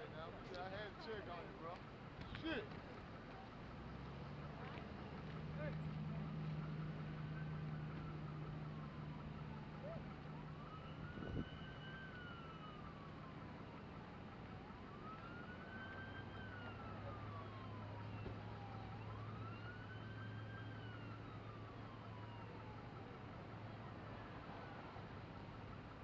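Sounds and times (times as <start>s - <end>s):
faint wailing siren: 5.2s - 26.0s.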